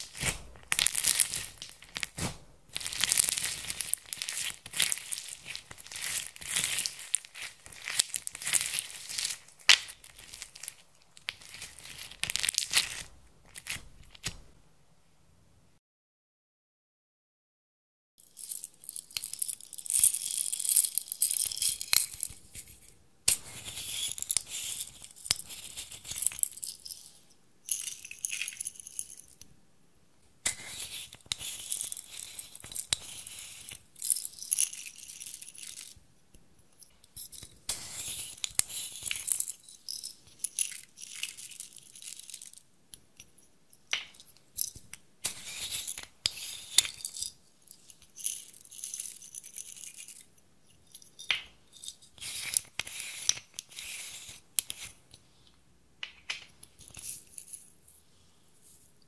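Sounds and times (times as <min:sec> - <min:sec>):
sprinkles rattling in jars: 0:02.8 - 0:13.0, 0:23.6 - 0:29.4, 0:37.2 - 0:42.6.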